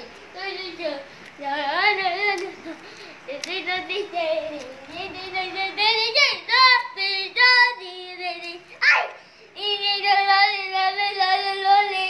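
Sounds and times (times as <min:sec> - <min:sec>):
child singing high notes: 0:08.8 - 0:09.2.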